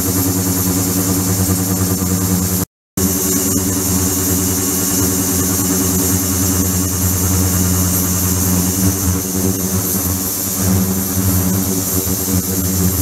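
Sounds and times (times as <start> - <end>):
ultrasonic cleaner buzzing hum: 0.0 - 13.0.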